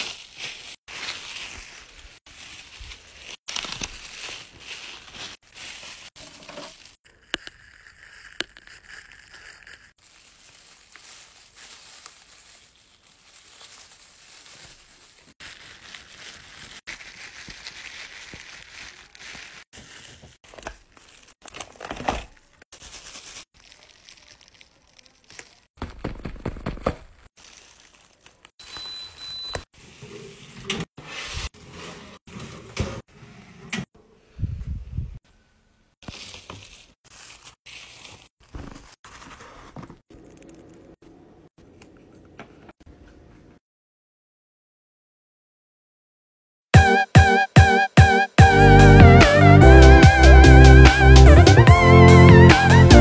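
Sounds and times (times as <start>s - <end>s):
plastic crinkling and rustling: 0.0s - 28.8s, 36.0s - 40.5s.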